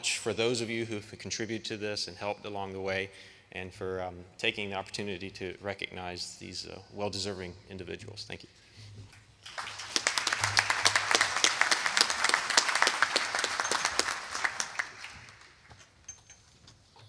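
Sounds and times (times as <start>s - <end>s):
audience applauding: 9.4s - 15.8s.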